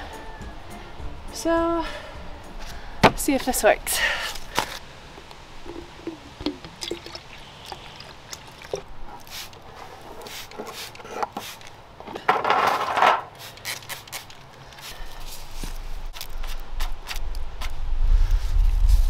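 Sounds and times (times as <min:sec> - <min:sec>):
liquid pouring into bottle: 0:05.7 - 0:08.9
small clicks and splashes: 0:06.0 - 0:08.9
spray bottle hissing: 0:09.2 - 0:09.6, 0:10.2 - 0:11.7.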